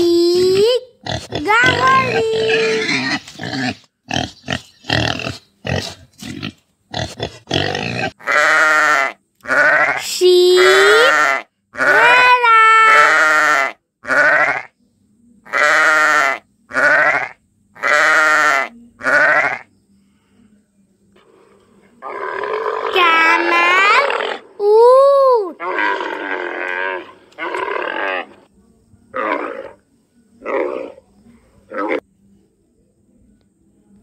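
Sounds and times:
pig grunting: 0.4s - 10.0s, 22.0s - 24.6s, 25.6s - 28.4s
sheep bleating: 8.2s - 10.0s, 10.6s - 12.3s, 12.9s - 14.7s, 15.5s - 19.7s.

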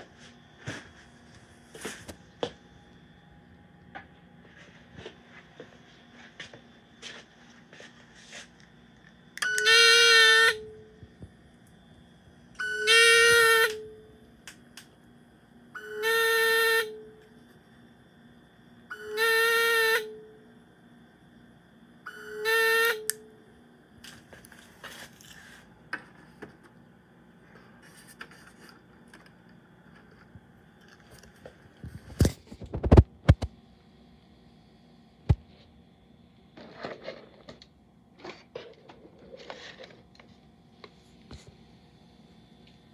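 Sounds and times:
electronic alarm tone: 9.4s - 11.0s, 12.6s - 14.2s, 15.8s - 17.2s, 18.9s - 20.4s, 22.1s - 23.4s.

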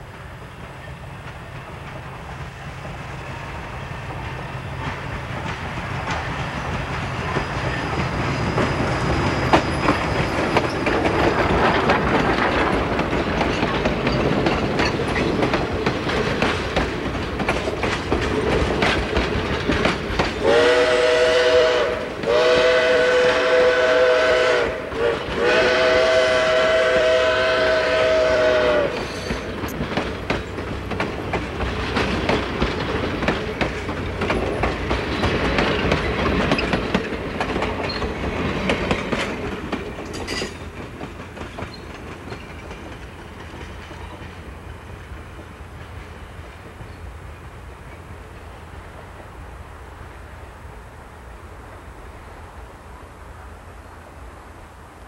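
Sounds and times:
train wheels clicking over rail joints: 0.0s - 49.3s
steam locomotive chime whistle: 20.4s - 29.6s.

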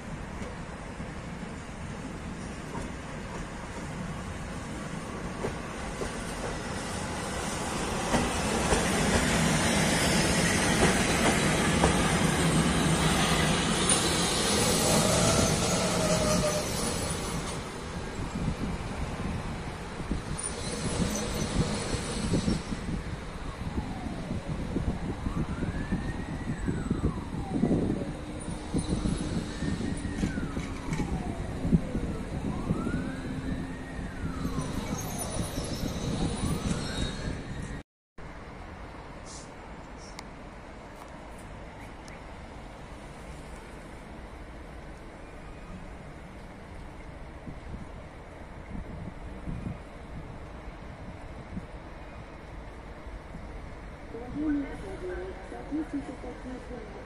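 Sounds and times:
emergency siren wailing: 23.1s - 37.6s.

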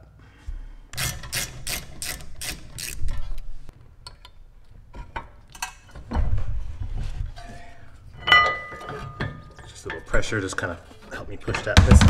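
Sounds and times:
hand ratchet clicking: 1.0s - 3.2s.

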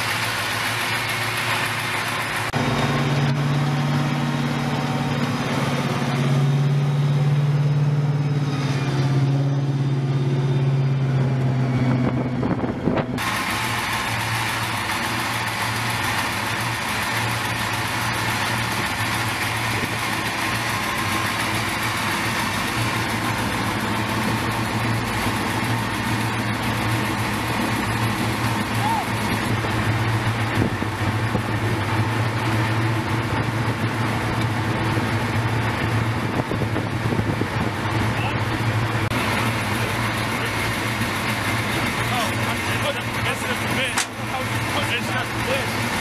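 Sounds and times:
engine idling with hiss: 0.0s - 3.1s, 13.0s - 46.0s
diesel engine running: 0.0s - 46.0s.

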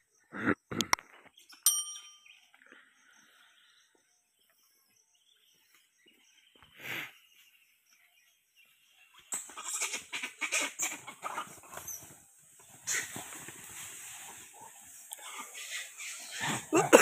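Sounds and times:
bell ding: 1.7s - 2.4s.

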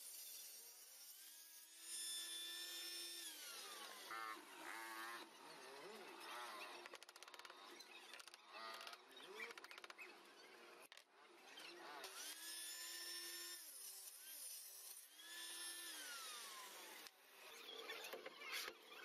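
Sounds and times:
table saw motor winding down: 0.1s - 9.9s, 12.0s - 19.0s.

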